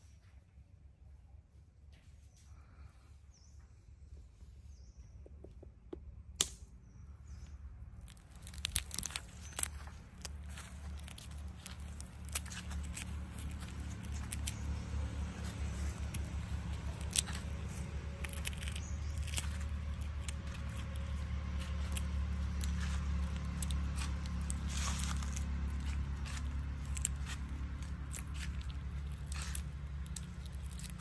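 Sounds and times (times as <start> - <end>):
steady low rumble: 0.7 - 31.0
eggshell cracking and peeling: 7.9 - 31.0.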